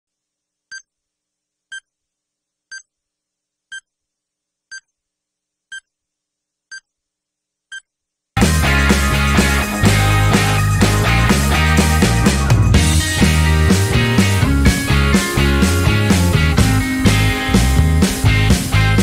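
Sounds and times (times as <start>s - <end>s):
loud rock music: 8.4s - 19.0s.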